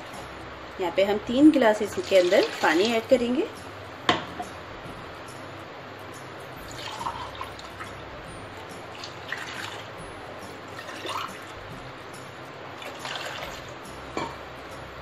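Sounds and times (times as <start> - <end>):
water pouring and splashing: 1.9 - 3.1, 6.7 - 8.0, 8.6 - 10.0, 10.7 - 11.6, 12.8 - 13.9.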